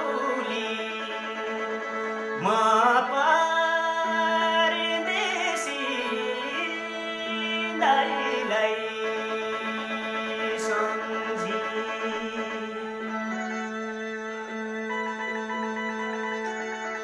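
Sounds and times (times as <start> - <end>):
person singing folk song: 0.0 - 13.6.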